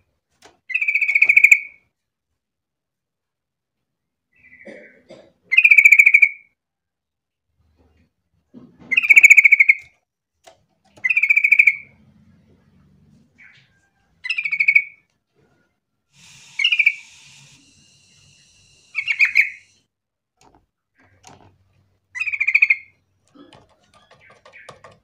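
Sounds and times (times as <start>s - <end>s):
brief hiss: 16.2s - 19.8s
bulbul singing: 16.2s - 19.8s.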